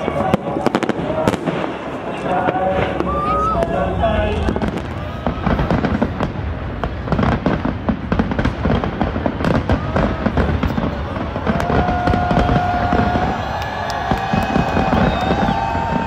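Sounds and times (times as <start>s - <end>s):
fireworks crackling and popping: 0.0s - 16.0s
low rumble of firework bursts: 0.0s - 16.0s.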